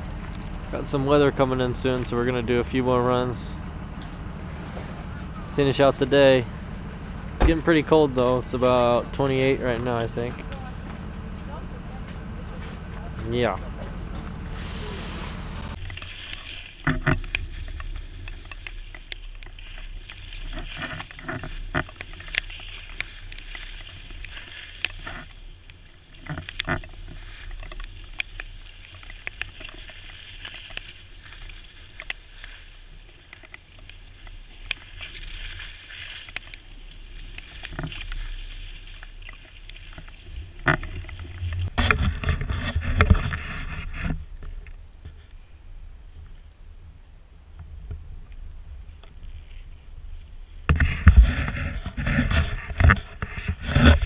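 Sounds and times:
edges scraping across snow: 0:14.3 - 0:44.2.

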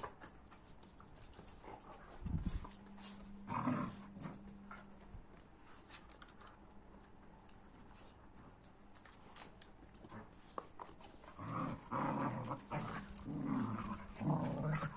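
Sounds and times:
dogs scuffling: 0:00.0 - 0:14.9
dog growling: 0:03.4 - 0:04.8, 0:11.3 - 0:14.9.

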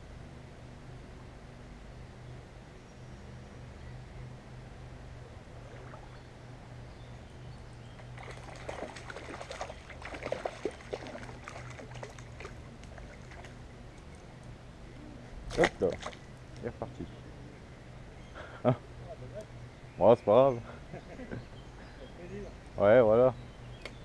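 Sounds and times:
fish splashing in water: 0:08.1 - 0:13.6.

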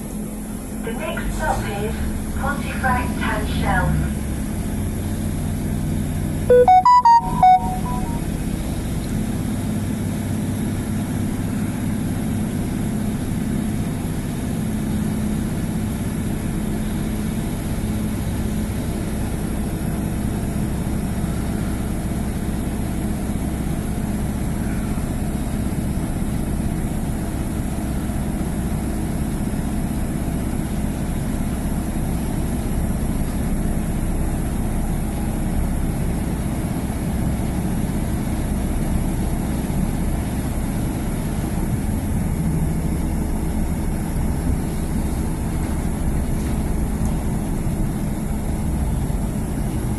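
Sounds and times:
diesel train engine droning: 0:00.0 - 0:49.9
loud electronic beeps: 0:06.5 - 0:08.2.

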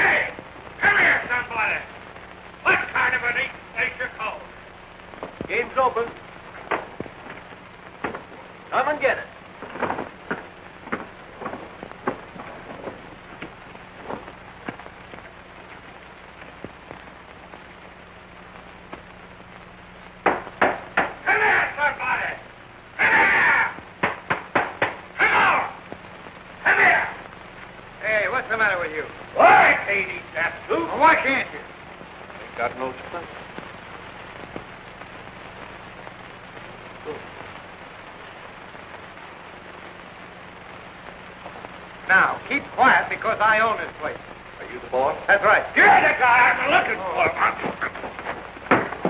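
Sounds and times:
film soundtrack hiss and hum: 0:00.0 - 0:49.0
sharp clicks and crackles: 0:04.7 - 0:08.7, 0:09.3 - 0:21.2, 0:31.8 - 0:42.0, 0:46.9 - 0:49.0.

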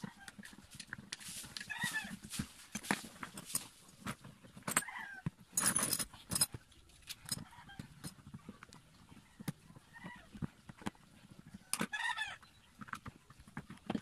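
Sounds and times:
metal parts clicking and clinking: 0:04.6 - 0:08.1
metal jangling rattle: 0:05.6 - 0:06.6.

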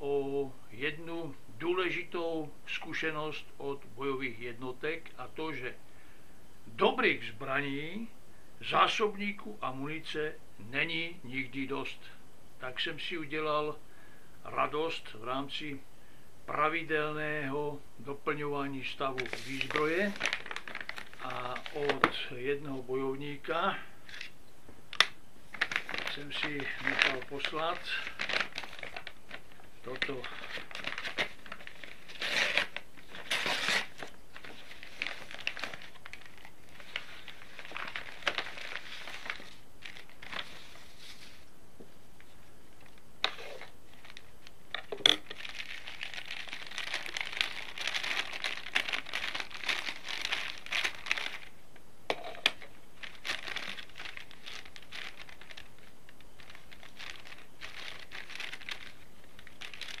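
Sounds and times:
packaging crinkling and rustling: 0:19.1 - 0:22.3, 0:24.9 - 0:41.4, 0:42.8 - 0:51.5, 0:52.2 - 1:00.0.

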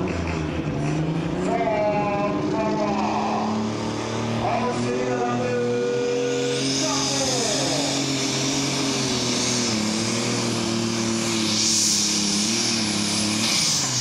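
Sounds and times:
diesel engine running hard: 0:00.0 - 0:14.0
turbo hiss: 0:06.2 - 0:14.0.

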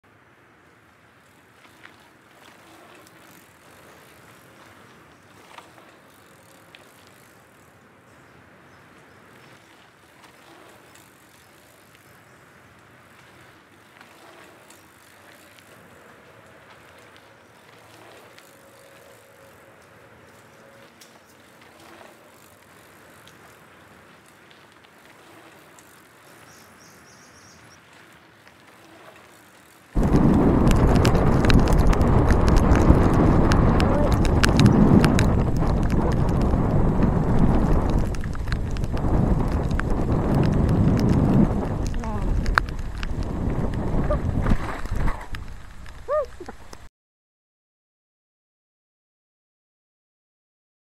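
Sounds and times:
bike rattling: 0:00.8 - 0:46.9
wind rushing on microphone: 0:30.0 - 0:46.9.

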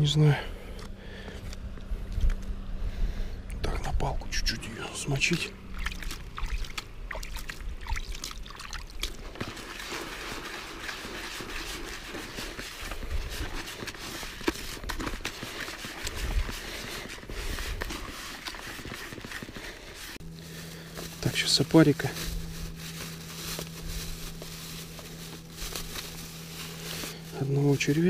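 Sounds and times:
gritty rustle of bait stirred by hand: 0:05.6 - 0:28.0.

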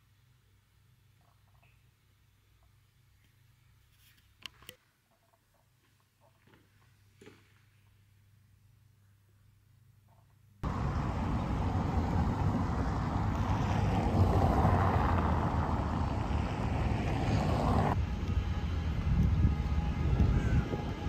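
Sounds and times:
cars driving over cobblestones: 0:10.6 - 0:21.0.

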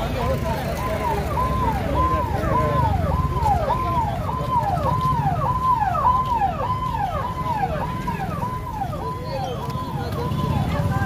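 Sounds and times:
street noise rumble: 0:00.0 - 0:11.0
electronic siren alarm: 0:00.4 - 0:11.0.

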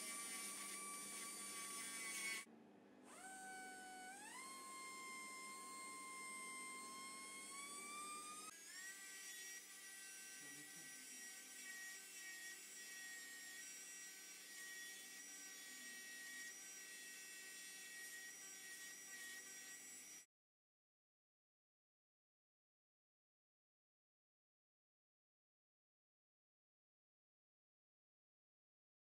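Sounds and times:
dental grinder whining: 0:00.0 - 0:02.5, 0:03.1 - 0:20.3.

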